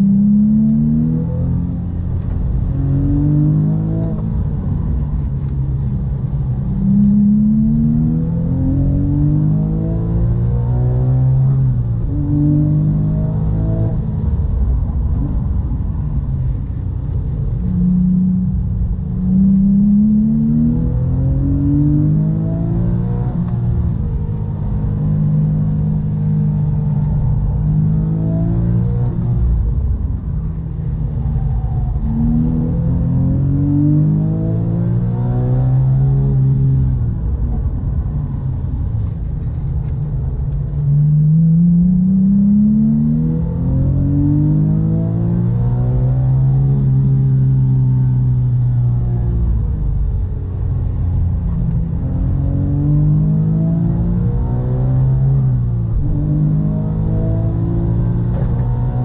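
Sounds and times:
car engine accelerating inside cabin: 0.0s - 59.0s.

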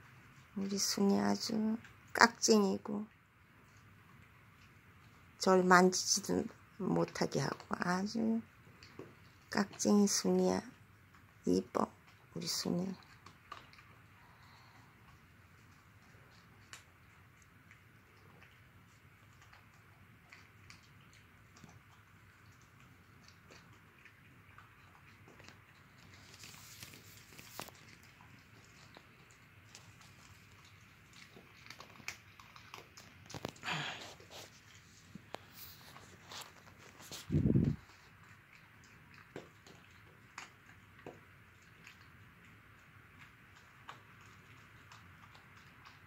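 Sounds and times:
dog chewing dry kibble: 6.1s - 46.0s.

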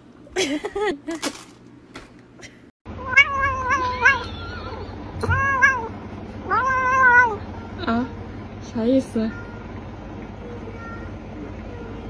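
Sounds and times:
cat meowing: 3.0s - 7.4s.

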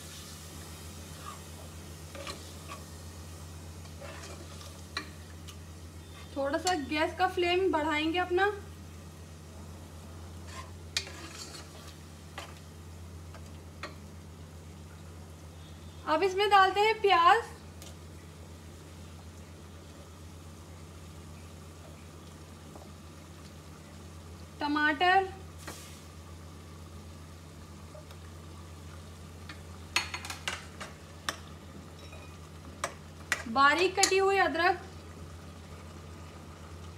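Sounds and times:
meat sizzling in oil: 0.0s - 7.9s, 25.4s - 36.9s
steady low hum: 0.0s - 36.9s
metal ladle scraping a pot: 3.9s - 4.7s, 10.4s - 12.5s.

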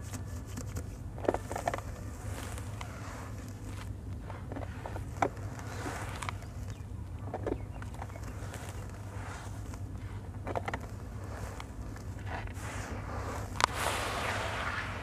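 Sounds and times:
steady low hum: 0.0s - 15.0s
gritty crunches of wet sand: 7.6s - 15.0s.

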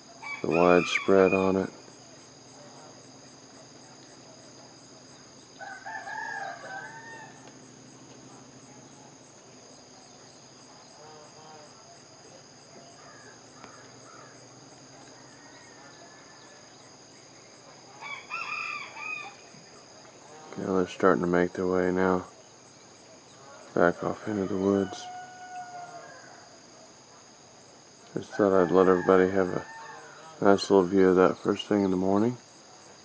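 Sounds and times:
high-pitched insect chorus: 0.0s - 33.0s
rooster crowing: 0.2s - 1.7s, 5.6s - 7.5s, 15.0s - 16.8s, 18.0s - 19.5s, 23.4s - 26.6s, 28.2s - 30.4s.

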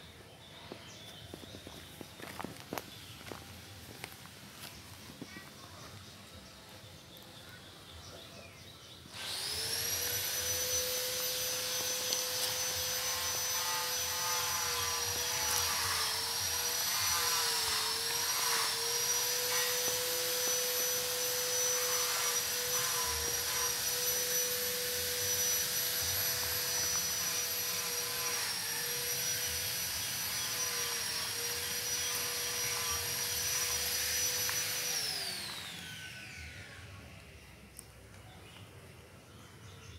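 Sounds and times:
electric motor whining: 9.1s - 37.4s.

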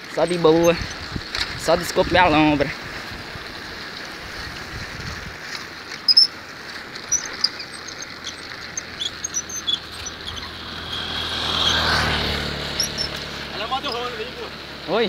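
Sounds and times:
bicycle tyres on asphalt: 0.0s - 15.0s
wind: 0.0s - 15.0s
high-pitched squeaks: 5.9s - 14.2s.

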